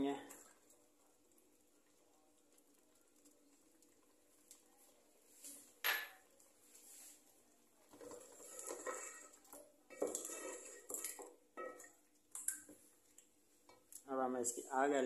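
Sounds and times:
spatula scraping metal pot: 0:08.0 - 0:11.7.

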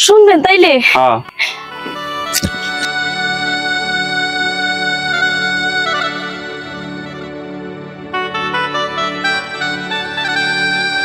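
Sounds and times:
keyboard melody: 0:01.2 - 0:11.0.

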